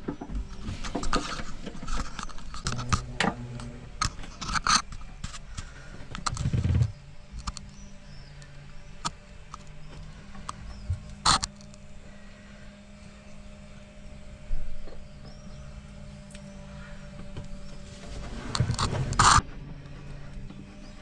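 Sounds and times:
metal tap clicks and scrapes: 0.5s - 6.7s.

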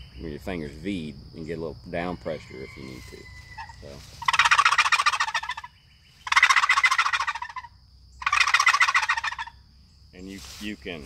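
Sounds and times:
box turkey call gobbling: 2.5s - 9.6s.

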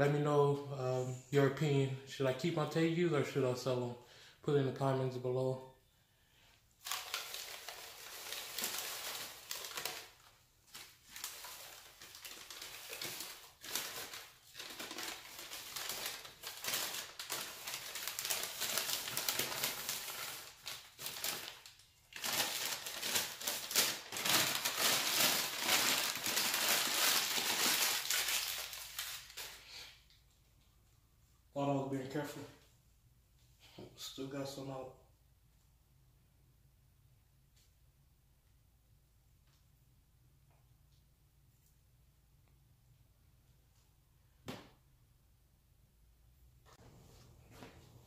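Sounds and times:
newspaper crinkling and rustling: 6.8s - 29.6s.

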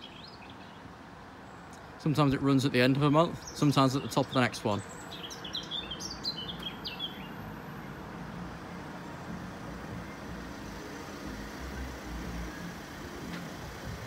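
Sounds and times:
vehicle engines rumbling: 0.0s - 14.0s
bird chirps: 3.3s - 7.5s.

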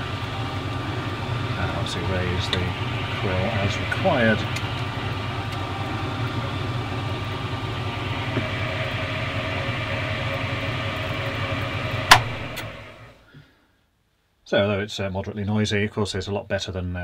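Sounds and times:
drill press motor humming: 0.0s - 13.2s
motor spinning down: 0.0s - 13.2s.

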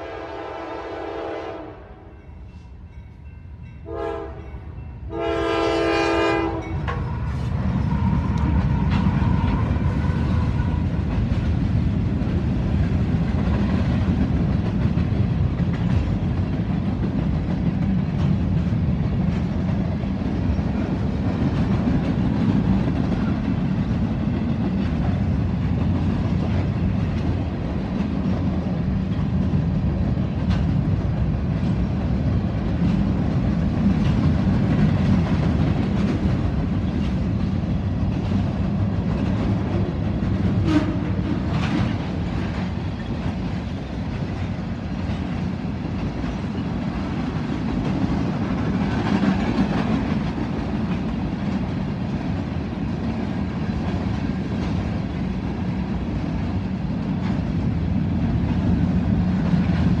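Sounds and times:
locomotive horn blast: 0.0s - 2.1s, 3.8s - 4.5s, 5.1s - 6.8s, 40.6s - 41.3s
train wheels rumbling on rail: 0.0s - 60.0s.

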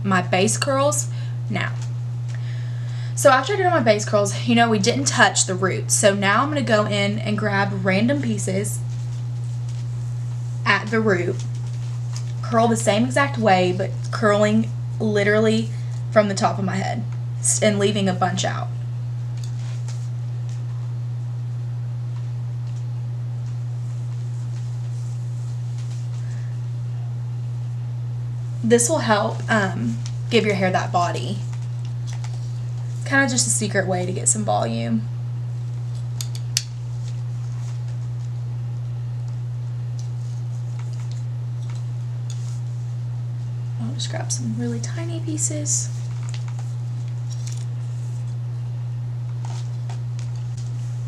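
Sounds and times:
low electrical hum: 0.0s - 51.0s
hair rustling with curling iron: 7.8s - 15.0s, 19.3s - 20.8s, 22.6s - 26.5s, 28.5s - 34.4s, 35.6s - 38.5s, 39.2s - 48.6s, 49.2s - 51.0s.

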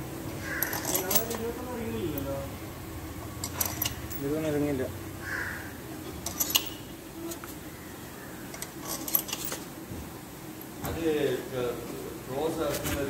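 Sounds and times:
metal bolts clinking: 0.6s - 1.5s, 3.4s - 4.4s, 6.2s - 6.8s, 8.5s - 9.7s.

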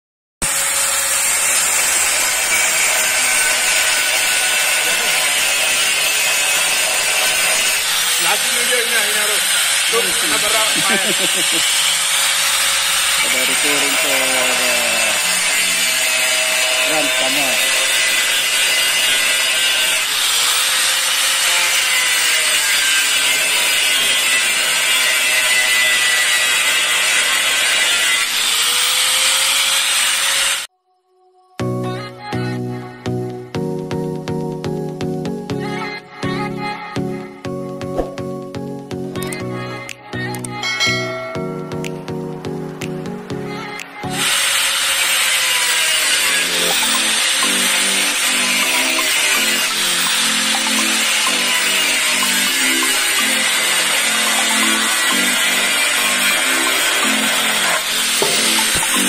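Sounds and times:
angle grinder grinding metal: 0.4s - 30.7s, 43.6s - 59.0s.

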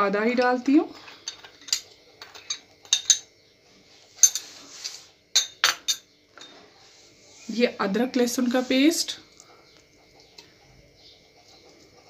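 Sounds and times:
metal spoon clinking against glass: 1.2s - 3.3s, 5.3s - 6.5s.

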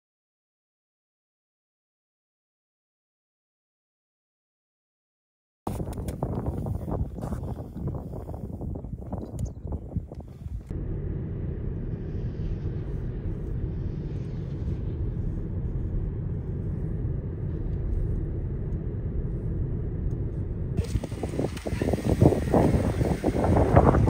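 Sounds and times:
vehicle engine rumble: 5.7s - 24.0s
wind noise: 5.7s - 24.0s.

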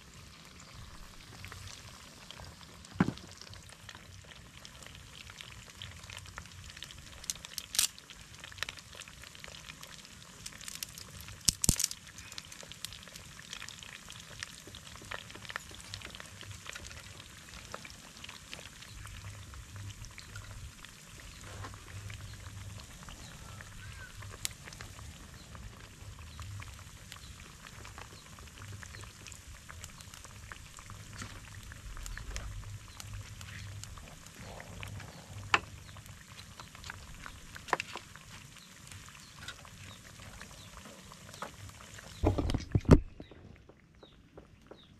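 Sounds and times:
potatoes frying in oil: 0.0s - 43.3s
low rumble: 29.8s - 37.5s.

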